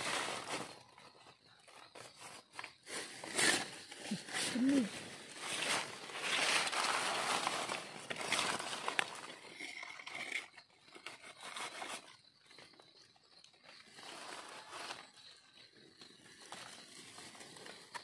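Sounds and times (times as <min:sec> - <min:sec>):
dry leaf litter rustling: 0:00.0 - 0:01.1, 0:02.8 - 0:09.4.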